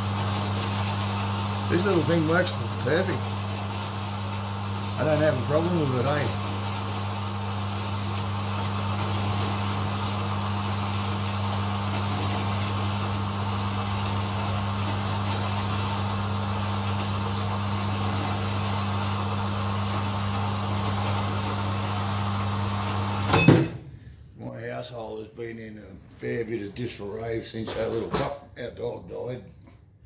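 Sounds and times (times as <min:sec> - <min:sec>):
band saw cutting steel: 0:01.6 - 0:04.0, 0:04.8 - 0:06.9.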